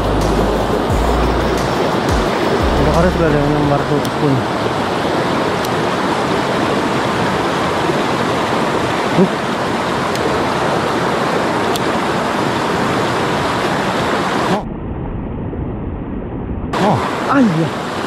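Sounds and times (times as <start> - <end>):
stream rapids rushing over boulders: 1.6 - 14.6, 16.8 - 18.0.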